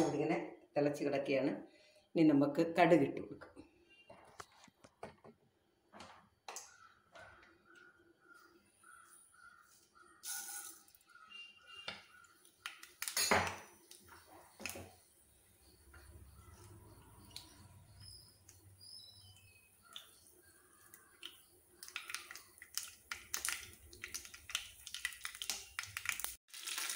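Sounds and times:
sizzling bursts: 10.2s - 11.0s
seeds popping in hot oil: 10.2s - 26.9s.

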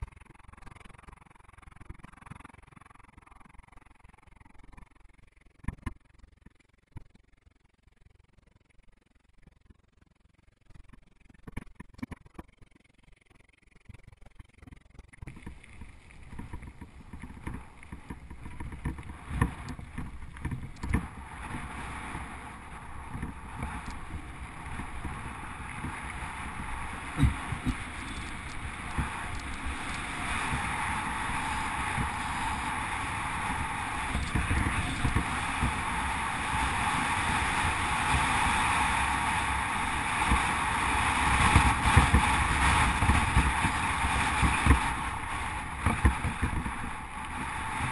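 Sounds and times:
bike tyres rolling on gravel: 15.0s - 47.9s
bike knocking over bumps: 15.2s - 38.4s, 41.3s - 47.0s
wind rushing over microphone: 15.3s - 47.9s.

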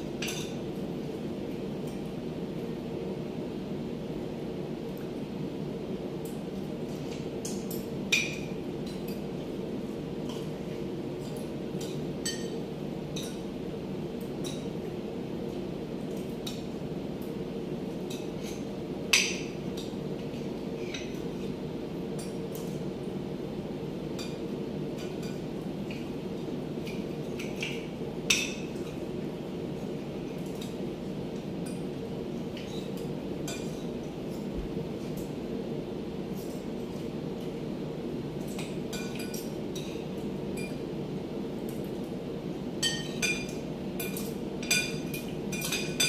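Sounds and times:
steady low hum: 0.0s - 46.0s
cutlery clinking on plates: 42.8s - 46.0s.

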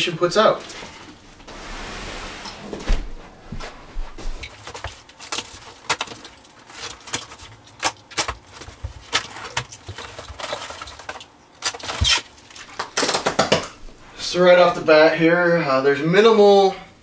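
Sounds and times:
cardboard and tape crackling: 3.0s - 13.7s.

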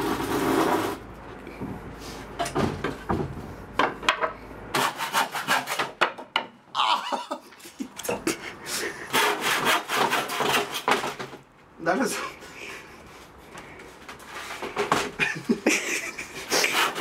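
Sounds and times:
handsaw cutting wood: 0.0s - 1.0s, 4.7s - 5.9s, 8.7s - 11.2s, 16.2s - 17.0s
wood knocking and scraping: 2.4s - 4.4s, 14.0s - 15.2s.

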